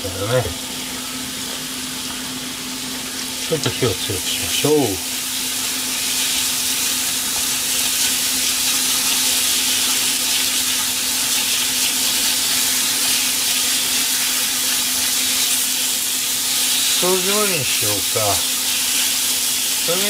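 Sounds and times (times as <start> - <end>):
steady low hum: 0.0 - 11.3
food sizzling in frying pan: 0.1 - 20.0.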